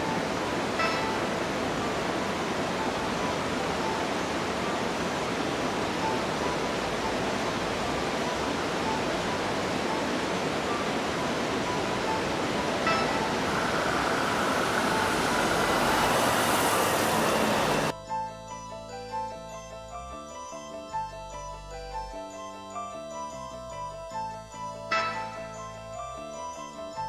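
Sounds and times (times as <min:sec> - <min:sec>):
river rushing: 0:00.0 - 0:18.0
vehicle noise: 0:00.0 - 0:18.0.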